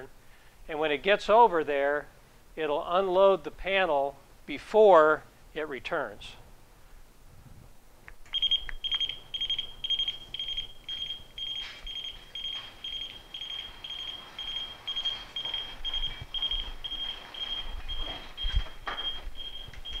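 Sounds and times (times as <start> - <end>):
short high warning beeps: 8.4 - 20.0.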